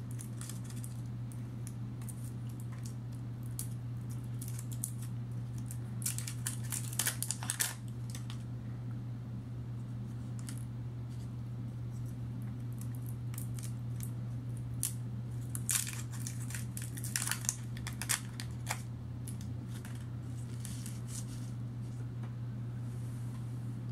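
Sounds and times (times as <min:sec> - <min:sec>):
candy wrappers crinkling: 0:00.0 - 0:08.4, 0:12.0 - 0:14.1, 0:14.7 - 0:21.5
steady low hum: 0:00.0 - 0:23.9.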